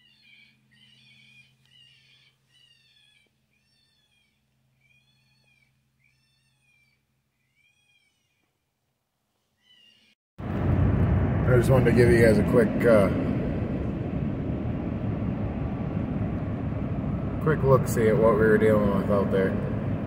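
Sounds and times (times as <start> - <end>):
high mewing calls: 0.0 - 8.6, 9.6 - 10.2
low steady hum: 10.4 - 20.0.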